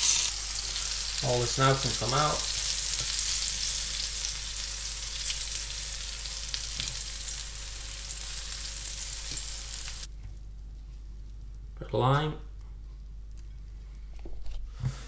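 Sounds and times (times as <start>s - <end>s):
fish fillets sizzling in frying pan: 0.0s - 10.1s.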